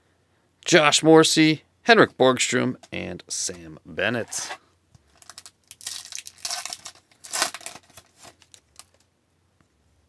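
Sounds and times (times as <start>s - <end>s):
foil wrapper tearing and crinkling: 5.1s - 9.0s.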